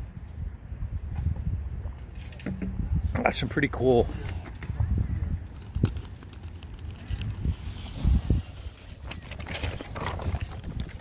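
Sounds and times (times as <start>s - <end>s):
microphone rubbing on shirt: 7.4s - 10.9s.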